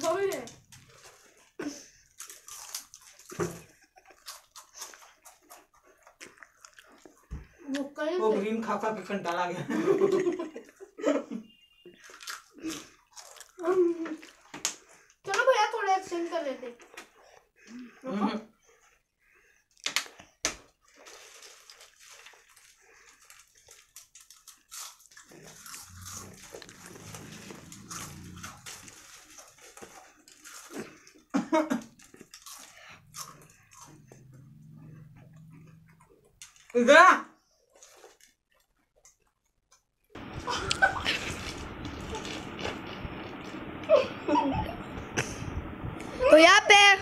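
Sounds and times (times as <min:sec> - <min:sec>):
potato chips crunching: 0:00.0 - 0:07.2, 0:12.0 - 0:14.5, 0:20.8 - 0:34.3, 0:37.7 - 0:43.6.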